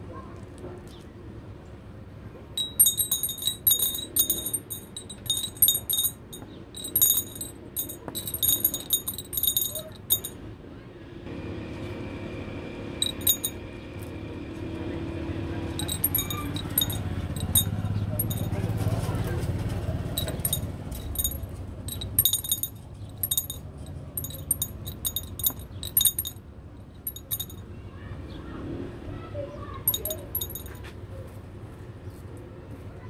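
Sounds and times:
glass bottle clinking: 2.6 - 10.4, 13.0 - 13.6, 15.8 - 18.5, 20.2 - 26.4, 27.1 - 27.6, 29.9 - 30.8.

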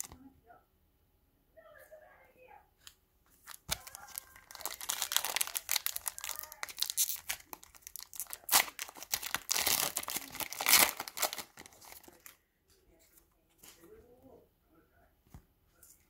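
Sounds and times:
foil wrapper crinkling: 3.4 - 12.4.

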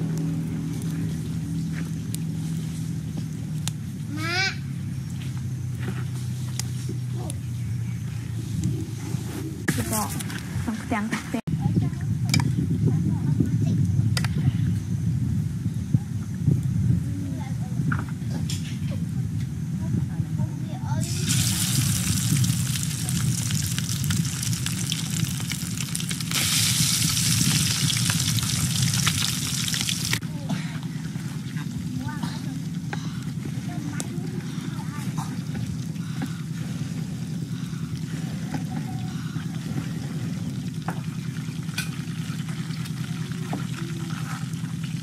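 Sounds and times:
frying in hot oil sizzling: 21.0 - 30.2, 40.5 - 45.0.

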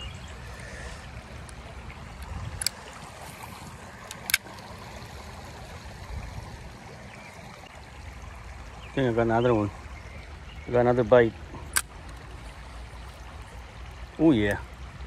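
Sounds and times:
sharp clicks: 11.7 - 12.2.

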